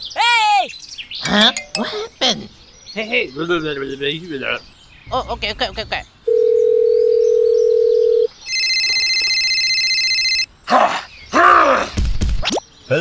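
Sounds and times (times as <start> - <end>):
mobile phone ringing: 6.3 - 10.5
steady telephone tone: 6.3 - 10.5.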